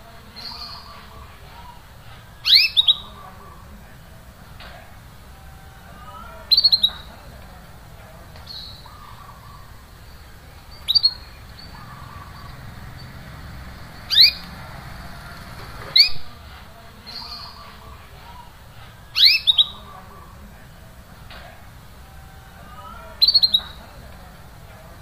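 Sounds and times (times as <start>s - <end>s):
canary chirping: 0.3s - 1.2s, 2.4s - 3.5s, 5.3s - 7.3s, 8.4s - 16.4s, 19.1s - 20.2s, 22.8s - 24.1s.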